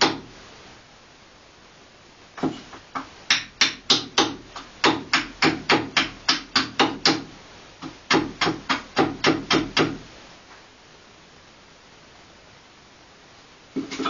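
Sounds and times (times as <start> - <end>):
hatchet chopping wood: 0.0 - 0.3, 2.4 - 7.3, 8.1 - 10.0.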